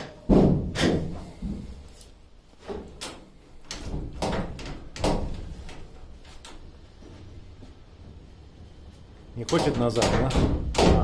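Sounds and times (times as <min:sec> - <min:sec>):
metal clunks and knocks: 0:00.0 - 0:01.8.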